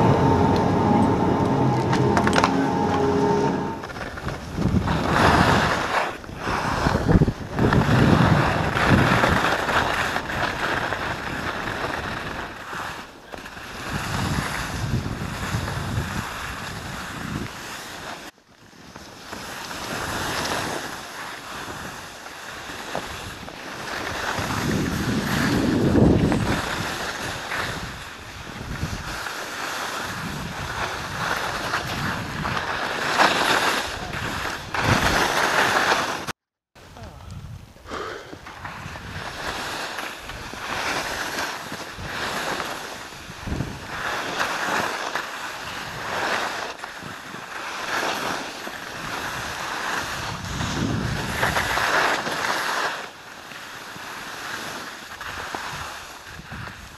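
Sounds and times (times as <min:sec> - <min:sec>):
skis scraping over snow: 0:00.0 - 0:36.3, 0:37.9 - 0:56.9
wind buffeting microphone: 0:24.3 - 0:27.0, 0:30.1 - 0:32.7, 0:36.9 - 0:41.3, 0:43.1 - 0:44.1, 0:49.0 - 0:51.8, 0:55.7 - 0:56.9.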